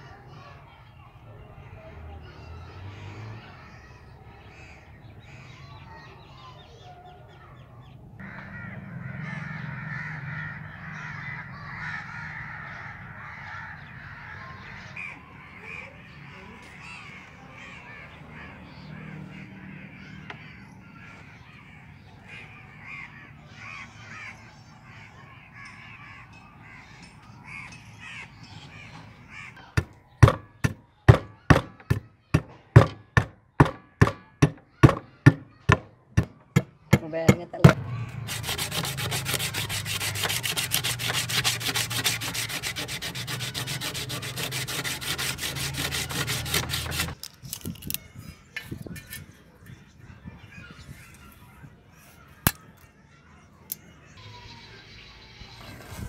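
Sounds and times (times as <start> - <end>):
crows cawing: 8.2 - 29.7
hatchet chopping wood: 29.8 - 37.8.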